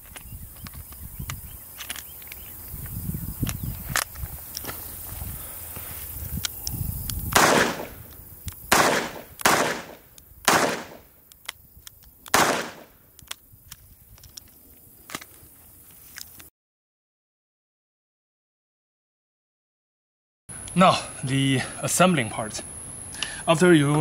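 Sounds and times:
revolver shots: 7.4s - 8.0s, 8.7s - 11.0s, 12.4s - 12.9s.

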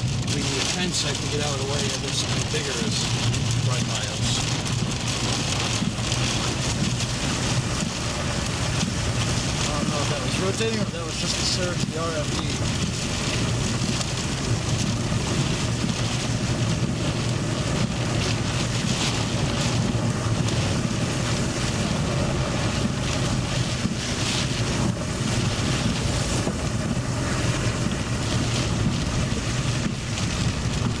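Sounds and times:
road and engine rumble: 0.0s - 31.0s
storm wind and rain: 0.0s - 31.0s
wind flutter on microphone: 12.6s - 31.0s.

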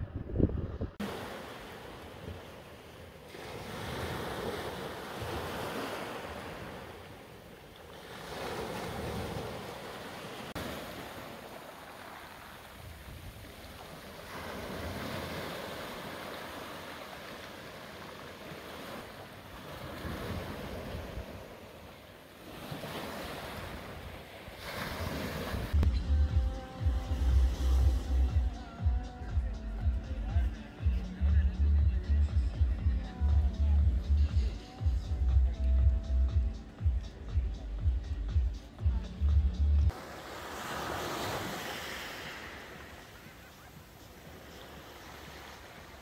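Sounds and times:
surf breaking on stony shore: 1.0s - 25.8s, 39.9s - 46.0s.

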